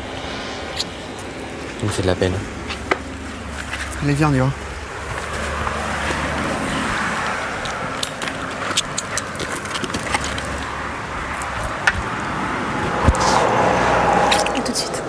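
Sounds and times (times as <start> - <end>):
low rumble: 0.0 - 8.0.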